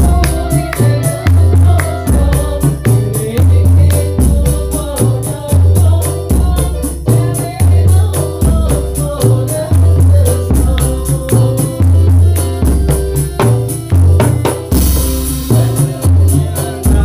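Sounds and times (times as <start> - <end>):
woman singing into a microphone: 0.0 - 3.7
deep frame drum strokes: 0.0 - 17.0.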